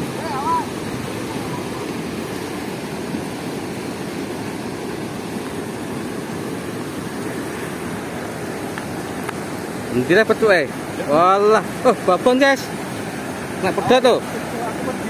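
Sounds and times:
white water roaring: 0.0 - 15.0.

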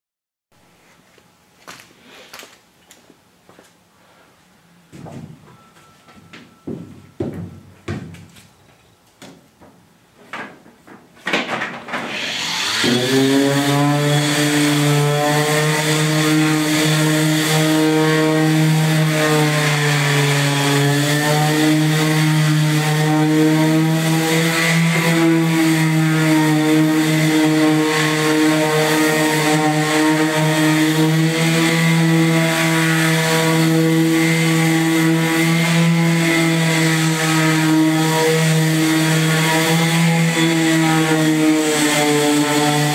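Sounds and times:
electric sander running: 12.0 - 42.9.

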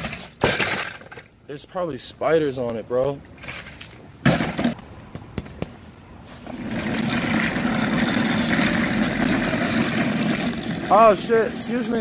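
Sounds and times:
chair casters rolling on concrete: 6.3 - 12.0.

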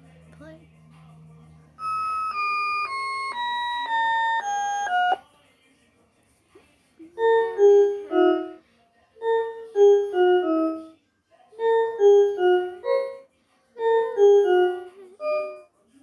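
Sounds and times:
toy keyboard descending notes: 1.8 - 5.2.

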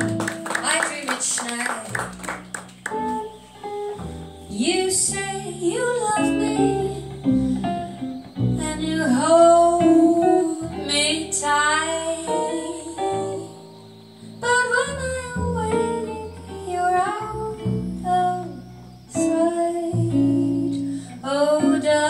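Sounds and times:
woman singing: 0.5 - 2.1, 4.5 - 7.6, 8.6 - 13.6, 14.4 - 22.0
electric jazz guitar chords: 1.8 - 22.0
upright double bass: 1.9 - 12.3, 14.9 - 22.0.

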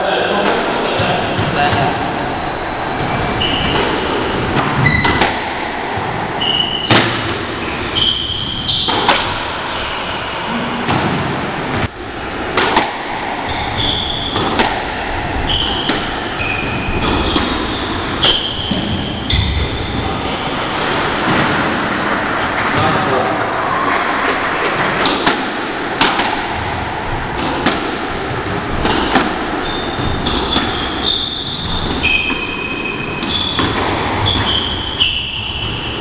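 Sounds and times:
shoes squeaking on wooden floor: 1.5 - 5.3
squash ball hits: 3.0 - 9.8, 10.8 - 21.9, 24.2 - 36.0.

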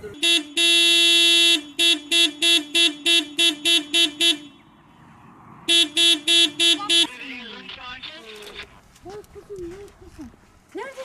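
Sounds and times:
car horn blasts and toots: 0.0 - 4.7, 5.7 - 7.2.

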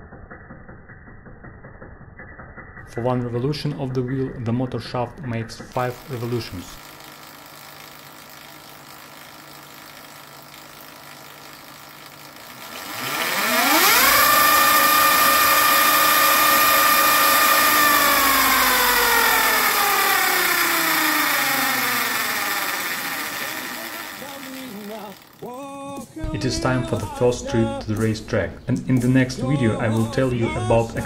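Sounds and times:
electric motor whine: 5.8 - 25.5.

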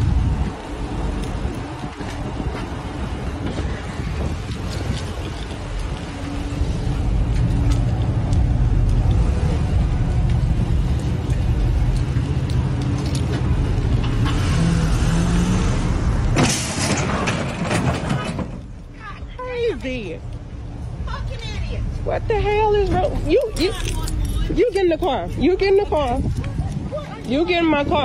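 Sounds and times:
car engine rumbling: 0.0 - 28.0
vehicle scraping another vehicle: 14.0 - 18.6.

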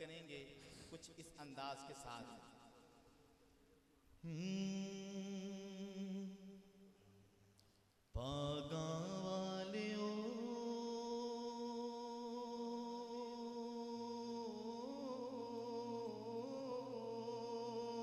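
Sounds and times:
man chanting over loudspeaker: 0.0 - 2.7, 8.2 - 18.0.

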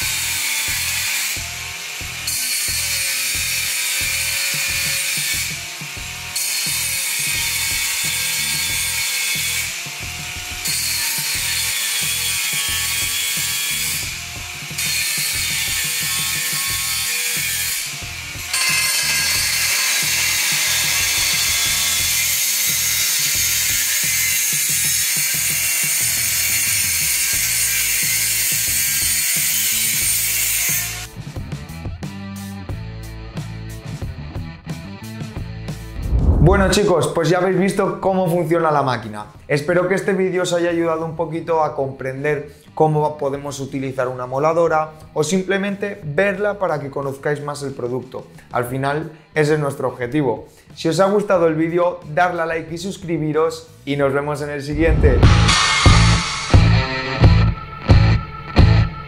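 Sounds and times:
angle grinder cutting metal tube: 0.0 - 31.1, 54.7 - 57.1.

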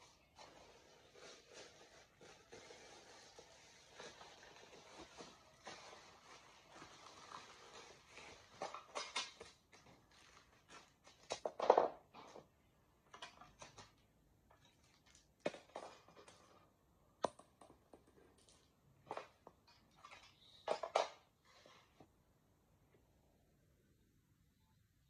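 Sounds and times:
bubble wrap crinkling: 0.0 - 11.3.

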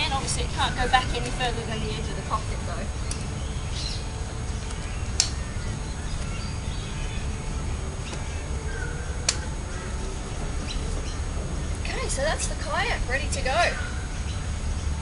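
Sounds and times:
low rumble: 0.0 - 15.0
sharp clicks: 4.6 - 5.4, 9.2 - 9.5.

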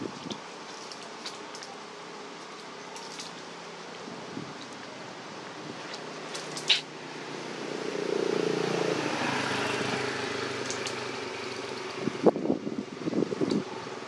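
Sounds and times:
vehicle engine passing by: 5.7 - 12.3.

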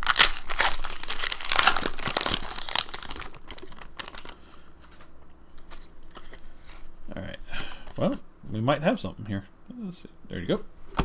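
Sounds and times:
foil wrapper crinkling and tearing: 0.0 - 4.7.

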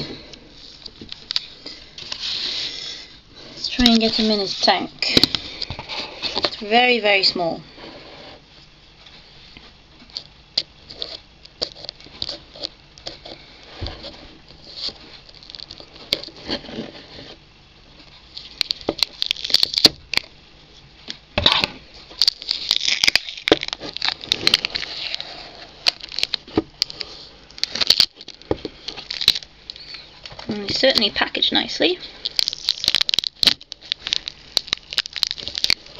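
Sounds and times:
cling film crinkling: 14.4 - 16.9, 18.0 - 20.3, 22.1 - 31.1, 32.2 - 35.9.

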